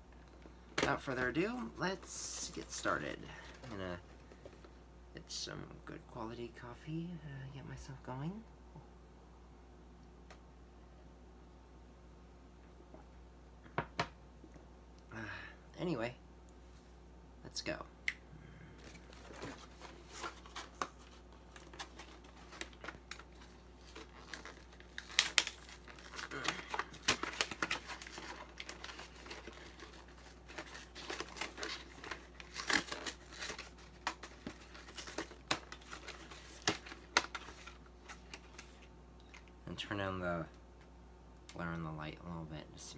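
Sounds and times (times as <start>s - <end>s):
cardboard packaging tearing and crinkling: 18.9s - 38.8s.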